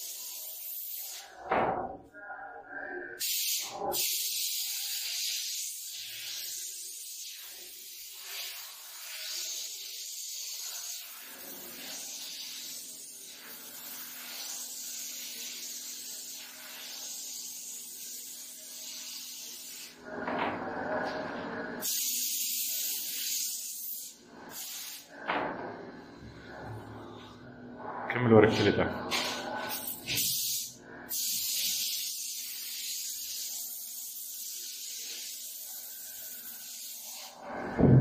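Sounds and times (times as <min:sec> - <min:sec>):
paint spray gun hissing: 0:03.2 - 0:20.0, 0:21.8 - 0:25.1, 0:29.8 - 0:37.9
steady low hum: 0:20.0 - 0:21.8, 0:25.1 - 0:30.1.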